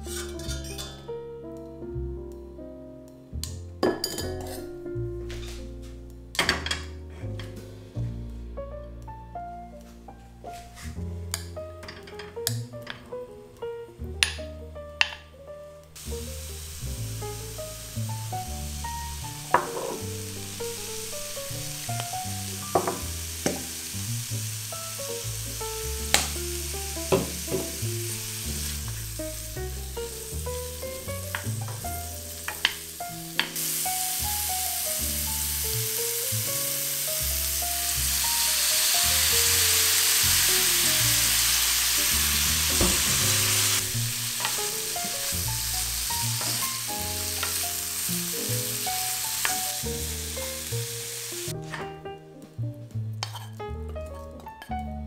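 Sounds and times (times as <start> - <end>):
background music: 0.0 - 55.0
food sizzling in a pan: 0.1 - 1.0, 16.0 - 51.6
wooden spatula knocking pan: 19.5 - 20.1, 22.7 - 23.7, 27.1 - 27.8.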